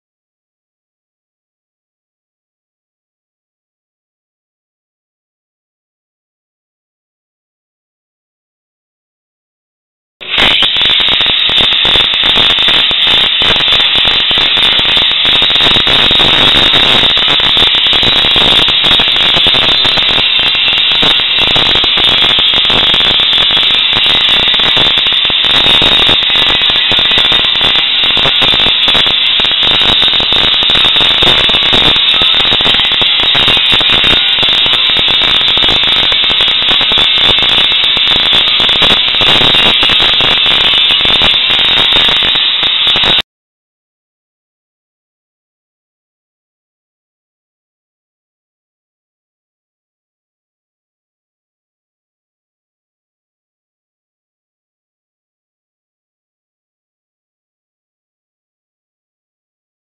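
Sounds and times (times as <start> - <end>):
welding arc crackling and hissing: 10.2 - 43.2.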